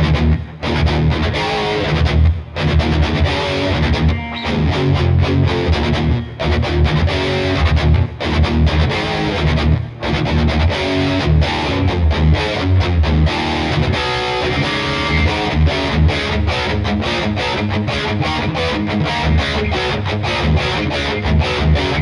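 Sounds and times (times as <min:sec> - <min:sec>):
distorted electric guitar riff: 0:00.0 - 0:22.0.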